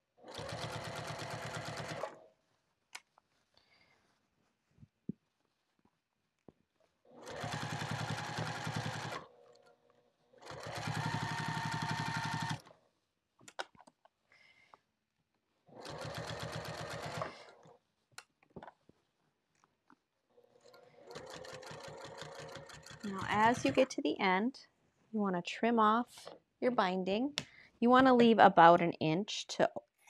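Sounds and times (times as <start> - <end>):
sewing machine stitching: 0.2 - 2.2, 7.1 - 9.6, 10.4 - 12.7, 15.7 - 17.7, 20.5 - 23.9.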